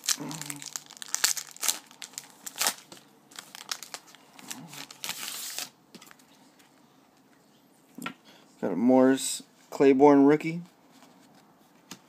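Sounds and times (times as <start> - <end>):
wrapper tearing and crinkling: 0.0 - 5.8.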